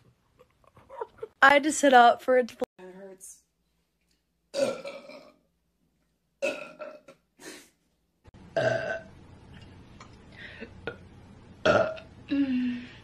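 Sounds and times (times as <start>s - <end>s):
women burping: 4.6s - 5.4s, 11.6s - 12.8s.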